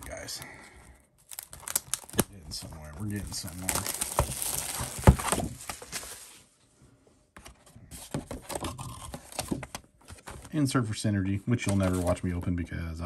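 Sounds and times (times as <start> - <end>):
packaging crinkling and rustling: 1.1 - 6.4, 8.0 - 10.6, 11.5 - 12.4.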